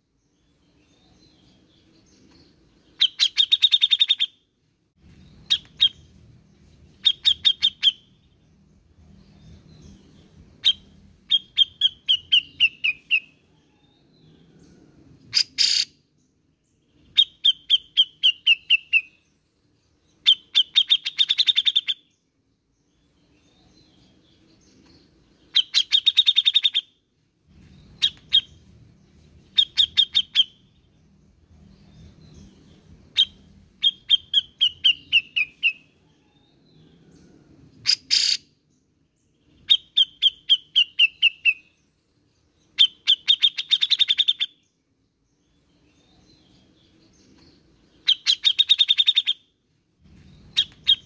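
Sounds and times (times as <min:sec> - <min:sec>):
bird singing clipped notes: 0:00.3 - 0:04.4, 0:05.1 - 0:08.1, 0:27.6 - 0:35.9, 0:45.4 - 0:49.4, 0:50.0 - 0:51.0.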